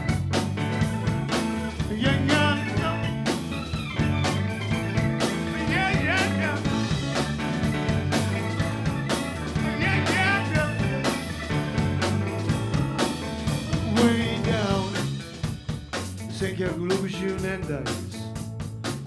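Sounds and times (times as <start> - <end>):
bass and keyboards: 0.0 - 19.0
drum kit steady beat: 0.0 - 19.0
person singing: 1.8 - 3.2, 5.4 - 6.9, 9.6 - 11.3, 13.7 - 15.2, 16.3 - 18.3.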